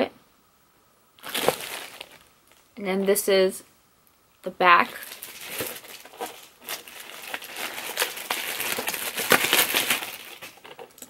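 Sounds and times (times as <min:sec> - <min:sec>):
plastic wrapping crinkling: 0:01.2 - 0:02.8, 0:04.7 - 0:11.0.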